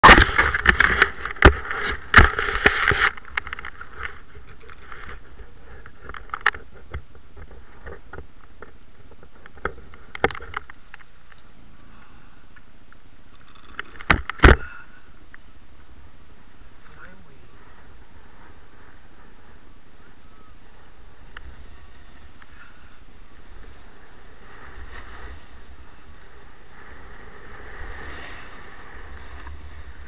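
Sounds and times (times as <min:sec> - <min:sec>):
snowboard scraping over snow: 0:00.0 - 0:06.0, 0:16.0 - 0:30.0.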